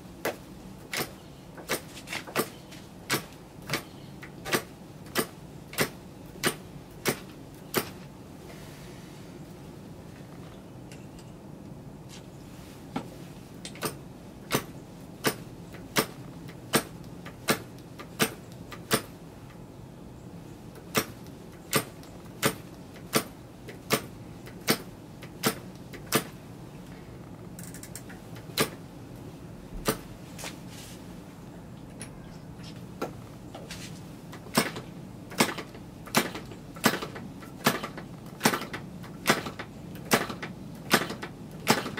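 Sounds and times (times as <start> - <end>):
model engine propeller clicks: 34.3 - 41.9.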